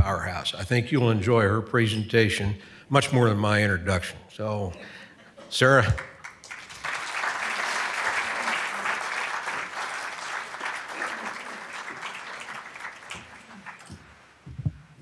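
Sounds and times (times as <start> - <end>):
audience applauding: 5.9 - 14.3.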